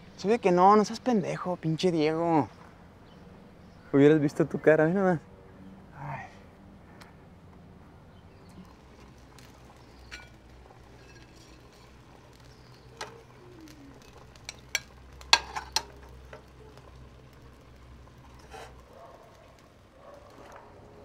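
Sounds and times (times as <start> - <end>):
utensils clinking on pots: 10.1 - 12.2, 14.0 - 16.4.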